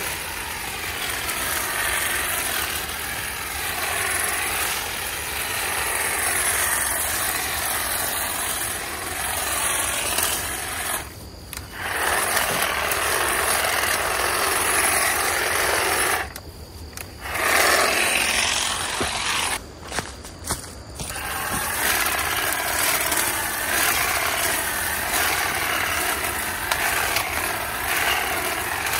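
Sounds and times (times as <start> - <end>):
hedge trimmer cutting vines: 0.0 - 19.6, 21.0 - 28.9.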